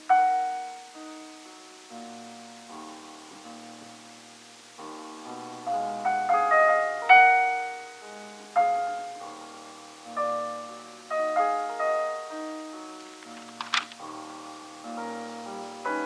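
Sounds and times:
slow solo piano chords: 0.0s - 16.0s
page turning rustle: 13.0s - 14.0s.

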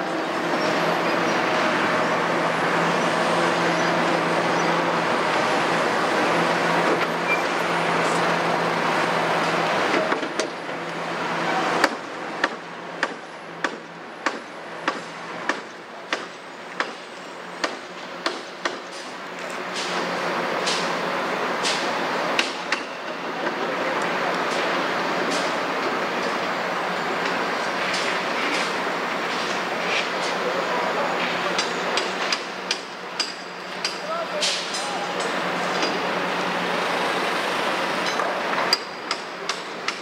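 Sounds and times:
heavy diesel engine: 0.0s - 40.0s
sharp evenly spaced knocks: 11.8s - 17.0s, 17.6s - 19.1s.

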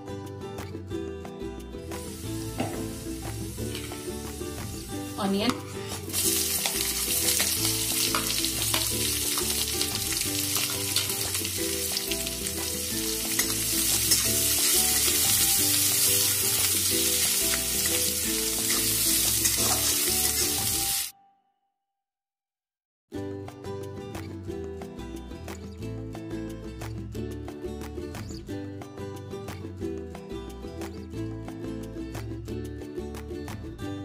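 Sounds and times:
onion sizzling in hot oil: 2.0s - 21.1s.

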